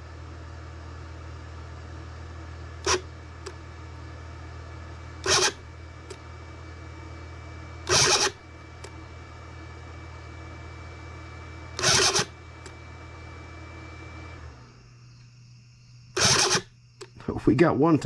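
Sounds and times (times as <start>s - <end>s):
electric starter cranking engine: 2.8s - 3.7s, 5.2s - 6.3s, 7.7s - 9.2s, 10.7s - 14.8s, 16.1s - 16.8s.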